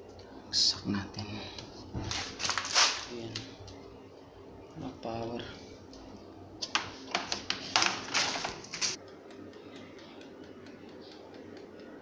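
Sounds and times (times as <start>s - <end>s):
faint regular ticking: 9.0s - 12.0s.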